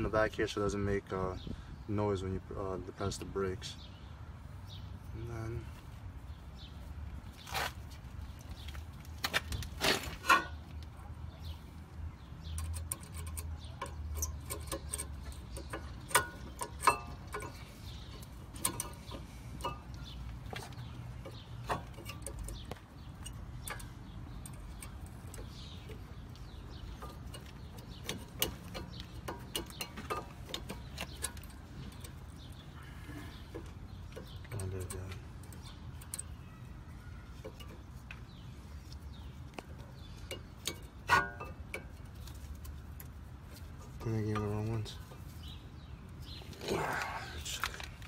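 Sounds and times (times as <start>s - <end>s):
metallic clicks of brake pad: 12.4s - 36.4s, 37.3s - 46.6s.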